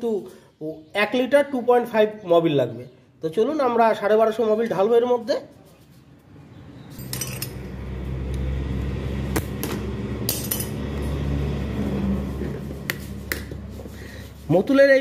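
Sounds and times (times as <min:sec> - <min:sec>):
vehicle engine humming: 0:07.0 - 0:14.5.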